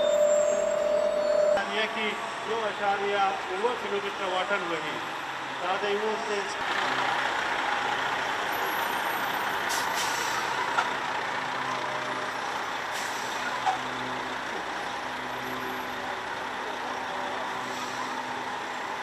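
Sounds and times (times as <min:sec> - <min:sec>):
diesel trucks rolling past: 0:00.0 - 0:19.0
air brake hisses: 0:09.7 - 0:10.6, 0:17.6 - 0:18.3.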